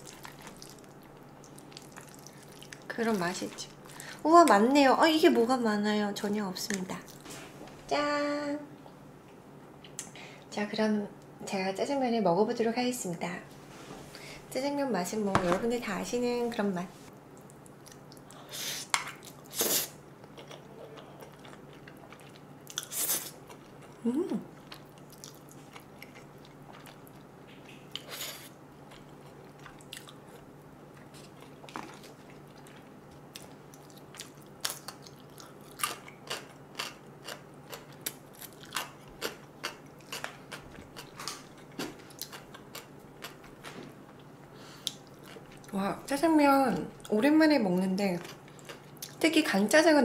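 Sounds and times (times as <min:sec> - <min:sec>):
chewing with wet mouth clicks: 0:00.0 - 0:04.0, 0:17.3 - 0:18.4, 0:20.2 - 0:28.2, 0:28.9 - 0:45.8, 0:48.2 - 0:49.2
low steady hum: 0:00.0 - 0:50.0.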